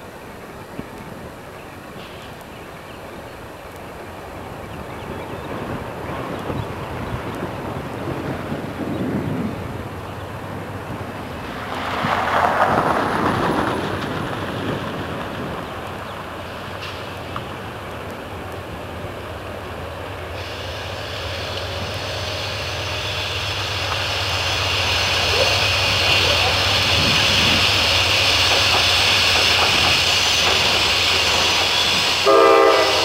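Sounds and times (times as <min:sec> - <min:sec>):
train low rumble: 0:00.0 - 0:33.0
high hissing: 0:19.0 - 0:33.0
rush of noise: 0:19.7 - 0:32.3.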